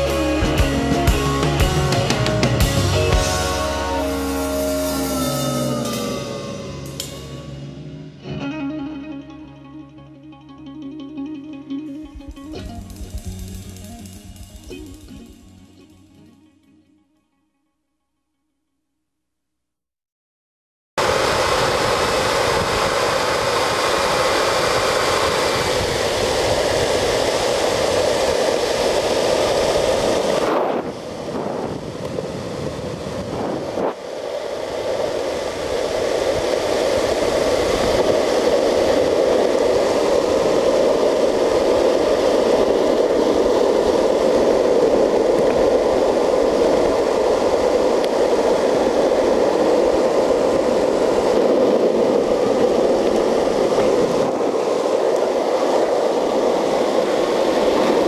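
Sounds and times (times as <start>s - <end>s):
longboard wheels rolling on asphalt: 21.0s - 58.0s
wind rushing over microphone: 21.0s - 58.0s.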